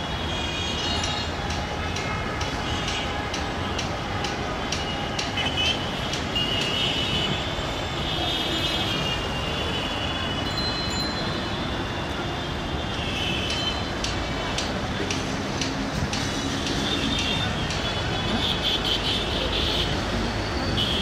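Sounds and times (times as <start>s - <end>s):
passenger train running on track: 0.0s - 21.0s.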